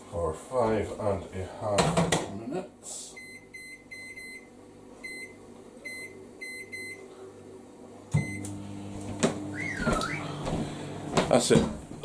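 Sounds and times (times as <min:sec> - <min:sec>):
microwave oven humming: 0:03.1 - 0:12.0
microwave keypad beeps: 0:03.2 - 0:07.0, 0:08.2 - 0:08.5.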